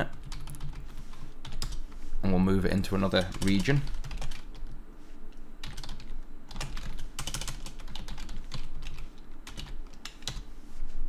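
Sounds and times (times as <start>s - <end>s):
computer keyboard typing: 0.0s - 1.9s, 3.0s - 4.8s, 5.6s - 10.5s.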